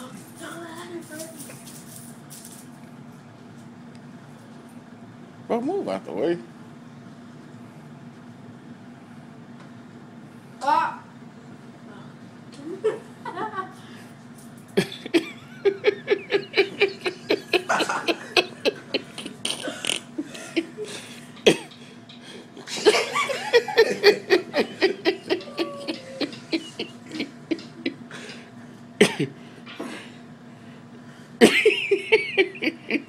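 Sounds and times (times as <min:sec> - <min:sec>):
people laughing hard: 0:14.8 - 0:21.7, 0:22.7 - 0:28.0, 0:31.4 - 0:33.0.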